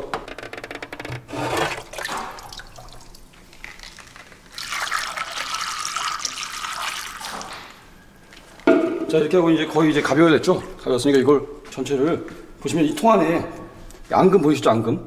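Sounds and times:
liquid pouring through funnel: 0:01.3 - 0:08.7
liquid sloshing: 0:01.3 - 0:08.7.

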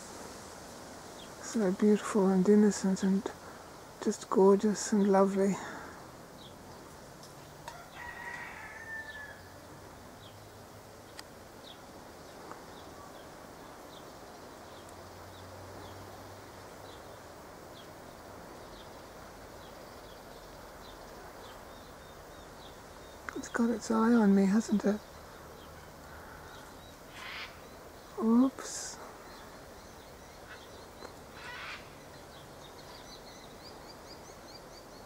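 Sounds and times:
cicadas humming: 0:00.0 - 0:35.0
distant bird call: 0:25.0 - 0:28.3, 0:29.0 - 0:35.0.

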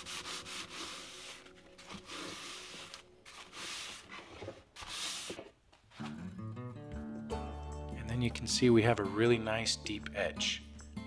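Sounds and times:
towel scrubbing a steel blade: 0:00.0 - 0:04.1.

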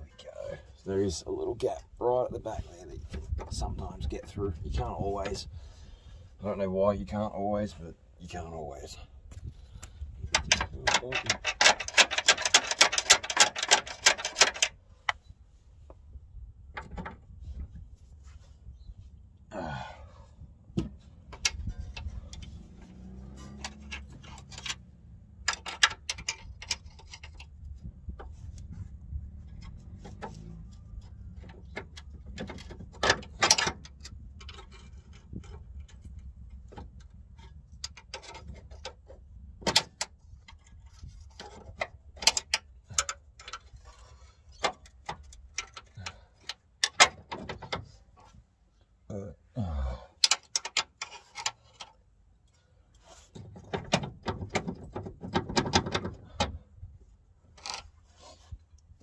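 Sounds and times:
metal clinks and knocks: 0:10.2 - 0:14.8, 0:20.8 - 0:48.4.

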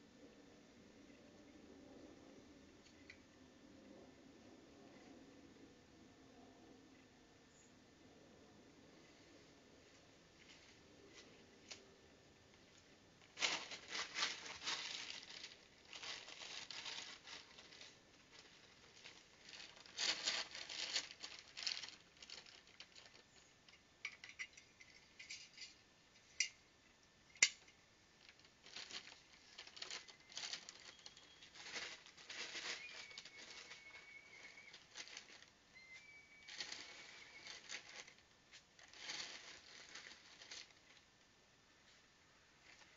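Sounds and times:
plastic bag rustling: 0:13.2 - 0:23.5, 0:28.2 - 0:41.1
seed pouring into feeders: 0:28.3 - 0:35.6, 0:36.3 - 0:41.0.

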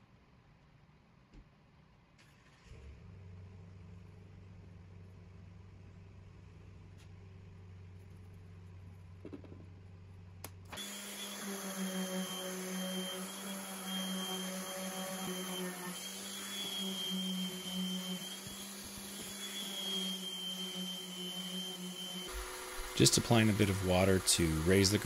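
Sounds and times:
orbit sander humming and whining: 0:10.7 - 0:25.0.

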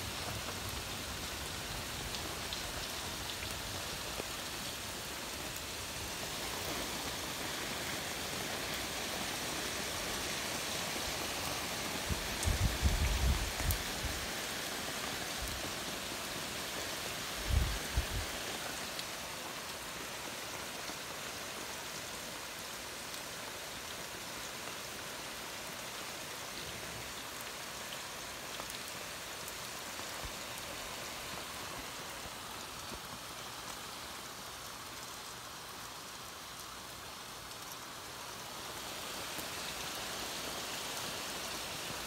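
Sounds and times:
heavy rain pouring: 0:00.0 - 0:42.0.

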